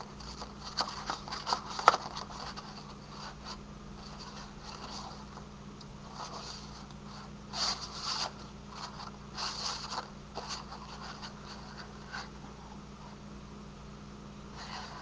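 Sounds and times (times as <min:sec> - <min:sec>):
paper rustling and scraping: 0:00.0 - 0:05.4, 0:06.0 - 0:12.6, 0:14.6 - 0:15.0
steady low hum: 0:00.0 - 0:15.0.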